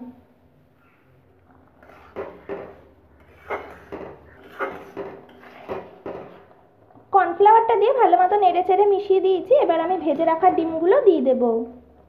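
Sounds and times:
spatula scraping metal wok: 1.5s - 6.6s.

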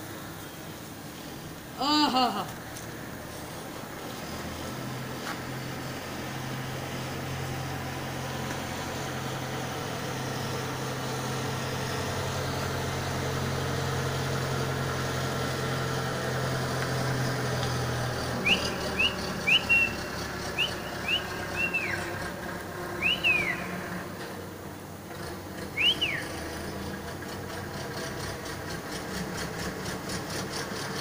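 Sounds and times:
high whistled chirps: 18.4s - 22.1s, 23.0s - 23.8s, 25.8s - 26.4s.

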